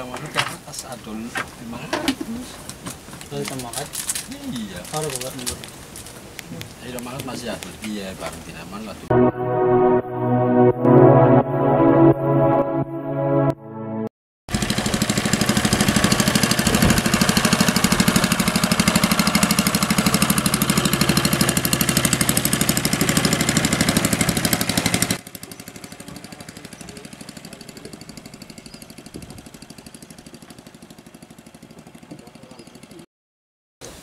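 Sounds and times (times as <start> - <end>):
boat engine running: 14.5 - 33.0
faint engine beat: 14.6 - 33.0.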